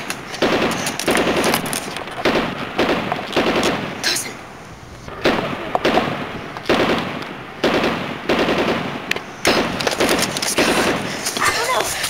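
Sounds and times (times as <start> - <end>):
machine-gun fire bursts: 0.0 - 4.3, 5.1 - 11.4.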